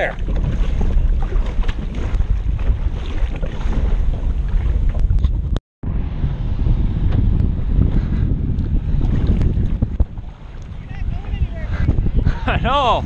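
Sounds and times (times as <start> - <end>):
paddle splashing in water: 0.0 - 5.6, 8.9 - 11.7
wind buffeting microphone: 0.0 - 13.0.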